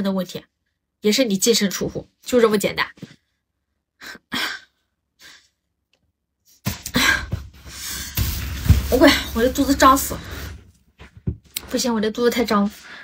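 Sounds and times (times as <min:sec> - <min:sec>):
breathy exhalations: 0:06.8 - 0:08.2.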